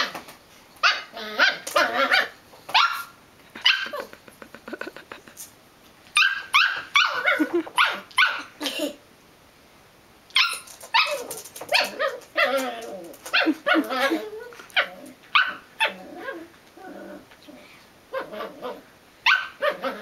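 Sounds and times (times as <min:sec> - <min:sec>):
puppy barking: 0:00.8 - 0:04.1, 0:06.2 - 0:08.5, 0:10.4 - 0:12.6, 0:13.3 - 0:16.4, 0:18.2 - 0:20.0.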